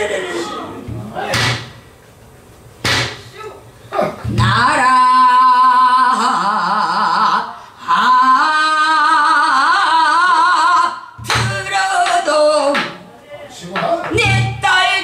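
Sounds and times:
woman singing with wavering vibrato: 0:04.3 - 0:12.9, 0:14.2 - 0:15.0.

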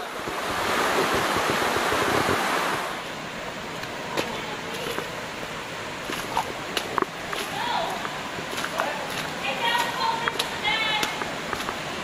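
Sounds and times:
wind buffeting microphone: 0:00.0 - 0:02.9
creek water rushing over rocks: 0:00.0 - 0:12.0.

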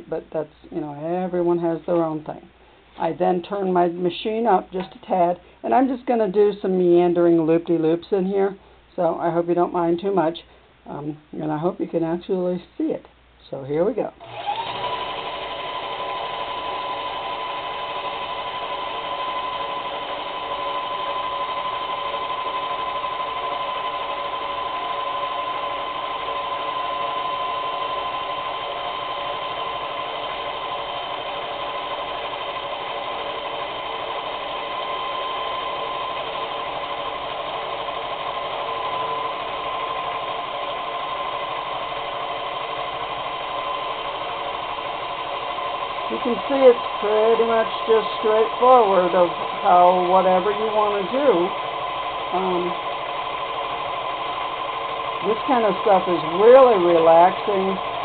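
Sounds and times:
motor whine: 0:14.2 - 0:58.0
quilting machine stitching: 0:14.2 - 0:58.0.

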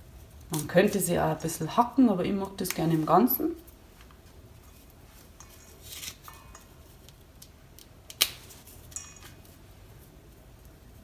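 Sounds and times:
leaves rustling and snapping: 0:00.4 - 0:01.6, 0:05.8 - 0:09.6.

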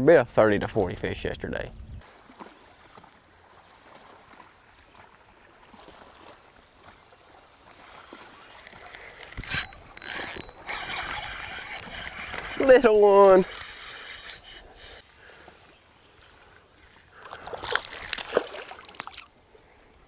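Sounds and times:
fishing reel winding: 0:08.5 - 0:15.0.

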